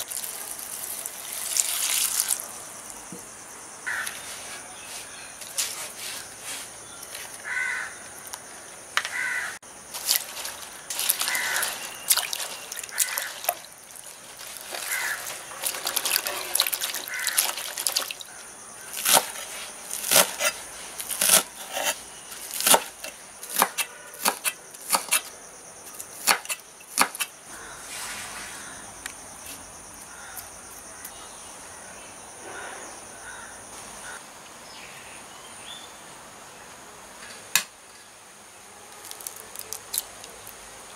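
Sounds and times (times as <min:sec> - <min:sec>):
water splashing and dripping: 0:00.0 - 0:02.5, 0:10.0 - 0:18.4
knife chopping on wooden board: 0:23.5 - 0:25.2.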